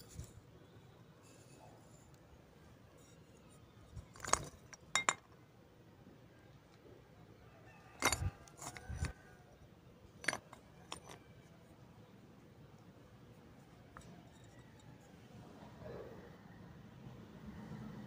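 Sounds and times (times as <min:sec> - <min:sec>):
pottery shards clinking: 0:04.1 - 0:05.3, 0:08.0 - 0:09.1, 0:10.2 - 0:11.2.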